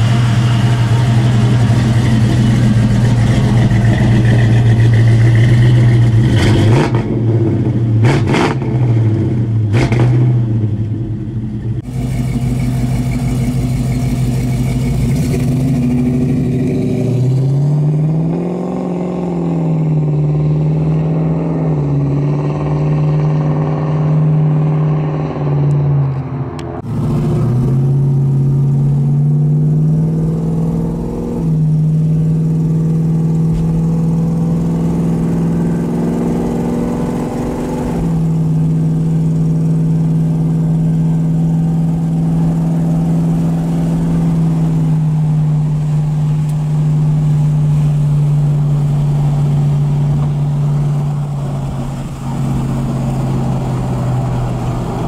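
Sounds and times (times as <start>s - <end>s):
car engine accelerating and cruising: 0.0s - 55.0s.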